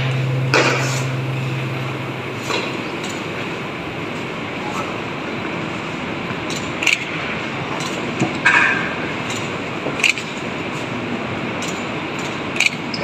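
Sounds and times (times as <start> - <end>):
large hall background noise: 0.0 - 13.0.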